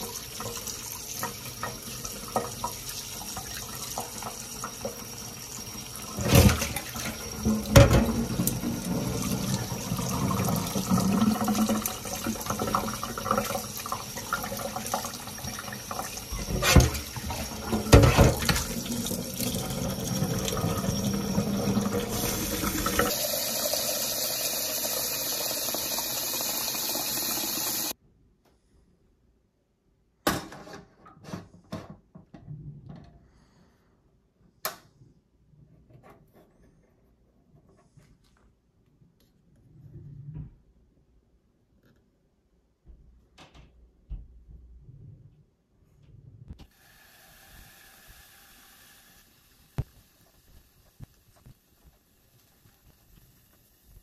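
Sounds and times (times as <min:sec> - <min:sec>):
tap water running into sieve: 0:00.0 - 0:28.0, 0:46.6 - 0:54.0.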